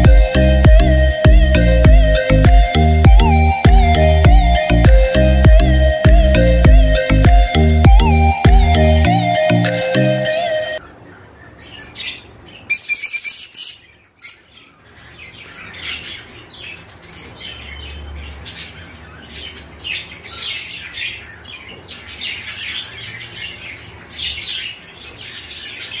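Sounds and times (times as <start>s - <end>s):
lovebirds chattering: 10.8s - 26.0s.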